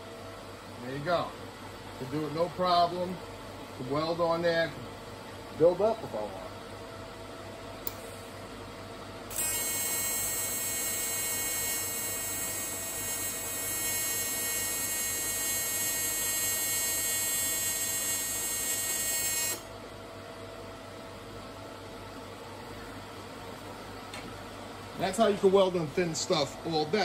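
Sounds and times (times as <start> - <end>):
welding arc buzz: 9.3 - 19.7.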